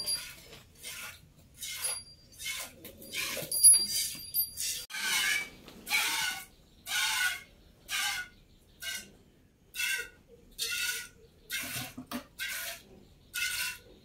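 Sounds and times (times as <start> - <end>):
metallic clinks: 3.0 - 4.9.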